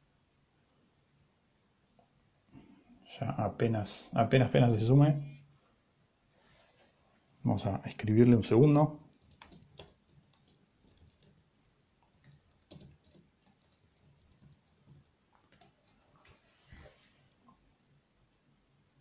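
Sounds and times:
typing clicks and taps: 9.0 - 16.0.

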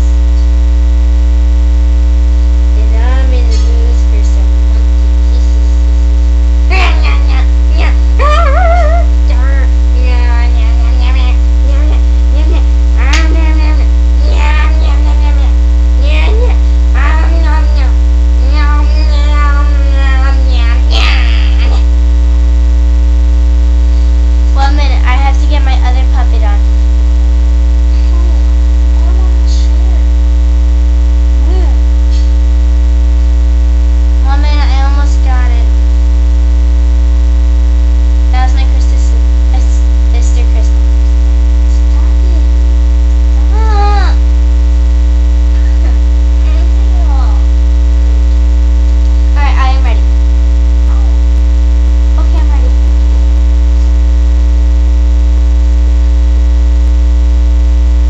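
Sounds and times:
loud electrical mains hum: 0.0 - 58.0
faint girl's voice: 6.7 - 21.9, 43.4 - 44.3, 45.6 - 47.5.

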